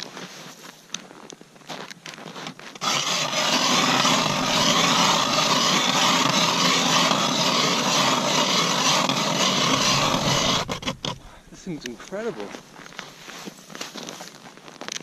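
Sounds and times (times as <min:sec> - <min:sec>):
ice auger grinding into ice: 0:02.7 - 0:12.3.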